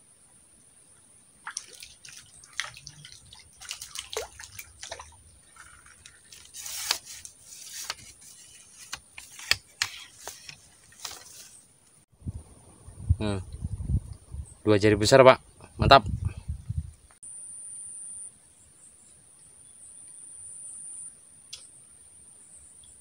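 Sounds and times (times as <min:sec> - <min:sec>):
water drips and small splashes: 0:01.4 - 0:07.3
fish splashing: 0:01.4 - 0:11.6.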